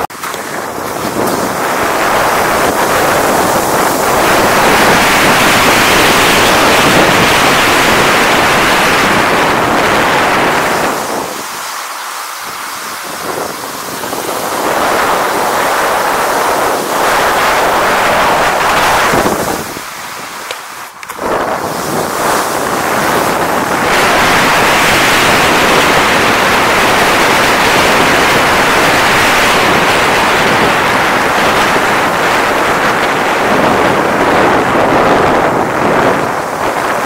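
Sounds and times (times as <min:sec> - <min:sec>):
wind rushing over microphone: 0:00.0 - 0:37.0.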